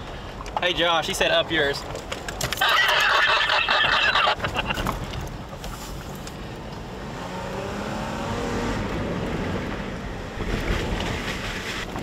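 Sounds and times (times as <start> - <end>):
low road rumble: 0.0 - 12.0
truck engine accelerating: 6.6 - 11.8.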